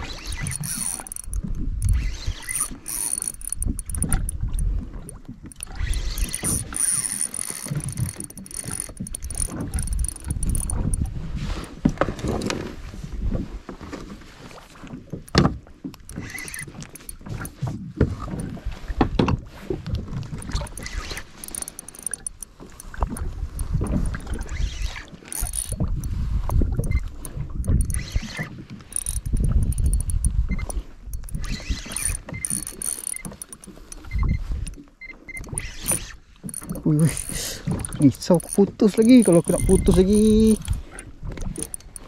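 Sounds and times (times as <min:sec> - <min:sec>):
water sloshing against hull: 0:00.0 - 0:42.0
knocks and clicks from gear: 0:00.3 - 0:11.1, 0:15.1 - 0:19.4, 0:20.0 - 0:24.6, 0:25.2 - 0:42.0
wind gusts on microphone: 0:25.5 - 0:32.4, 0:36.7 - 0:41.8.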